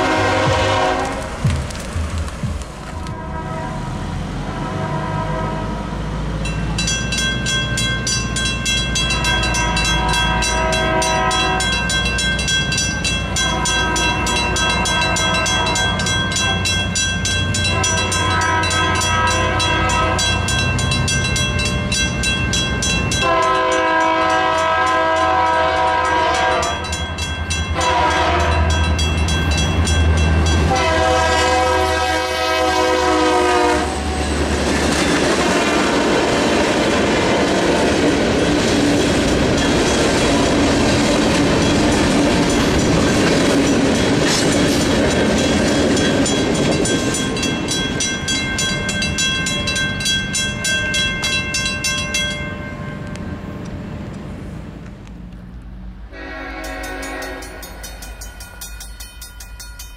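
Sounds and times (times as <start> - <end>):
locomotive horn blasts: 0.0 - 1.5, 2.9 - 6.1, 9.1 - 12.0, 13.3 - 16.7, 17.6 - 20.5, 23.1 - 27.0, 27.7 - 28.9, 30.6 - 34.2, 56.1 - 57.8
locomotive engine rumble: 0.0 - 59.2
rail cars rolling over crossing: 0.0 - 59.9
railroad crossing bell ringing: 6.3 - 36.2, 37.2 - 54.0, 56.1 - 59.9.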